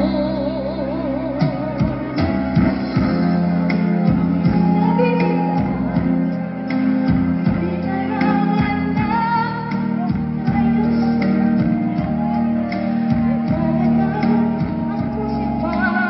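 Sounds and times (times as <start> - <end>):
backing track with guitar and beat: 0.0 - 16.0
women singing: 7.4 - 16.0.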